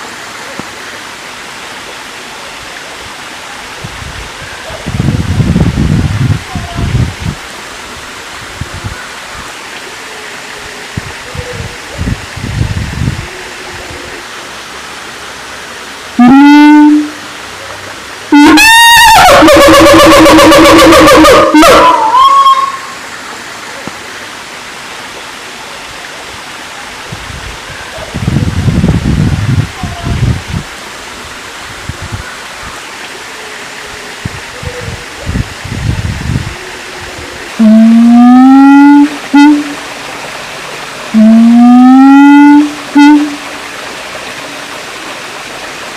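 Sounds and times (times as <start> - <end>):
ape loud rising call: 16.2 - 17.3, 18.3 - 23.0, 37.6 - 39.8, 41.1 - 43.4
background hiss: 20.3 - 45.9.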